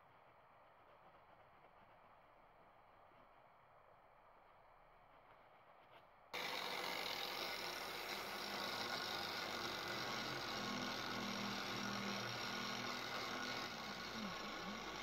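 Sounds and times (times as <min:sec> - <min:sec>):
angle grinder grinding steel: 0:06.4 - 0:15.0.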